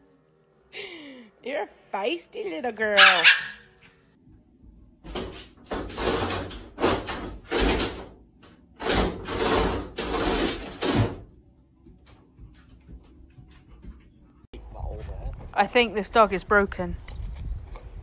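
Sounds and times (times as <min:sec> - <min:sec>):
wooden door rattling and banging: 0:05.0 - 0:11.4.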